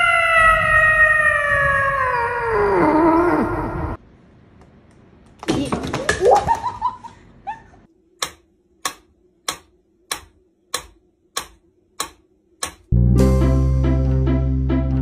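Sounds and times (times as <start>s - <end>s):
plucked-string music: 12.9s - 15.0s.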